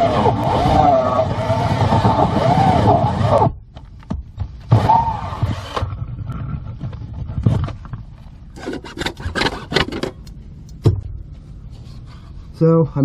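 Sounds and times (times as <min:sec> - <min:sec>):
hole saw scraping plastic: 0:08.5 - 0:10.2.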